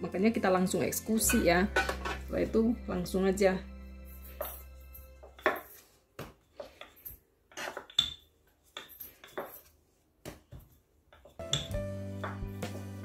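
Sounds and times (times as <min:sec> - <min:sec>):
metal bangles clinking: 0:03.9 - 0:05.9, 0:06.6 - 0:09.8.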